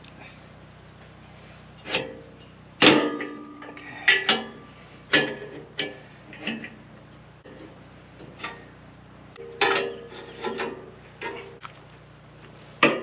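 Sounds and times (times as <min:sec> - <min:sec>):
steel clanks with ring: 0:02.8 - 0:06.6, 0:09.4 - 0:11.6.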